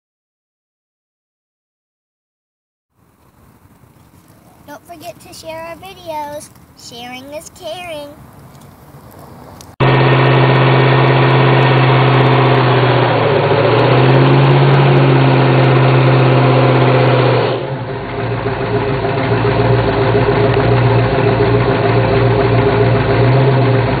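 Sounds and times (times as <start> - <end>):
car engine revving high: 9.8 - 24.0.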